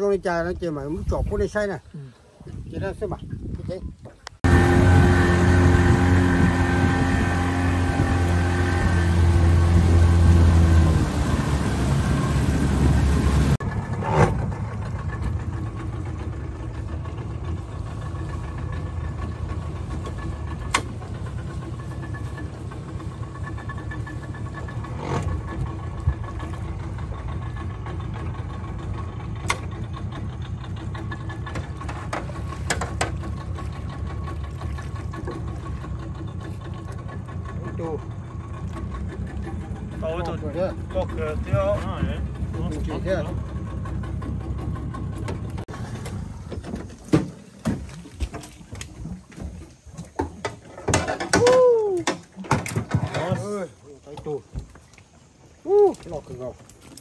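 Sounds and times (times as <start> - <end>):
motor engine running: 4.4 - 47.1.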